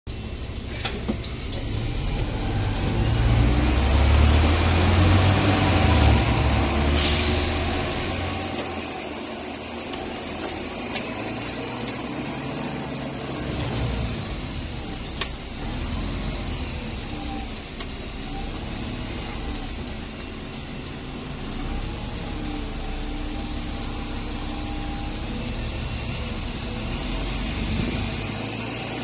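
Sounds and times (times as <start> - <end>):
bus engine rumble: 0.1 - 29.0
sharp clicks: 0.1 - 29.0.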